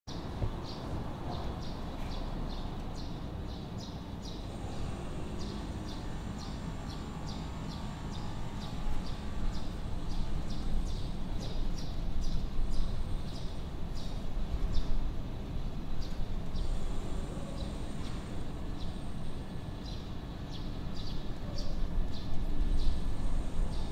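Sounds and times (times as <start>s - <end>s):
bird chirping: 19.8s - 23.0s.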